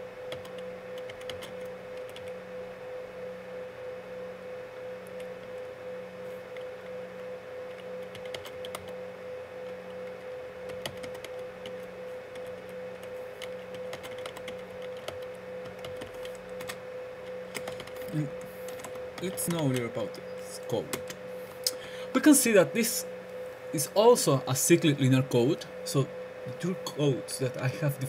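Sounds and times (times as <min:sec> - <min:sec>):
steady hum: 0:00.0 - 0:28.0
laptop keyboard clicking: 0:00.3 - 0:02.4, 0:07.7 - 0:09.0, 0:09.6 - 0:19.9.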